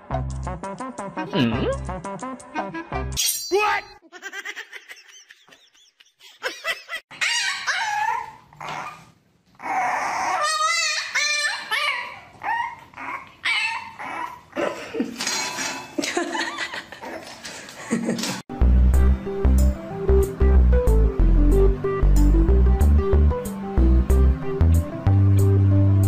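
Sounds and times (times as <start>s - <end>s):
puppy yelping and whimpering: 7.1s - 14.7s.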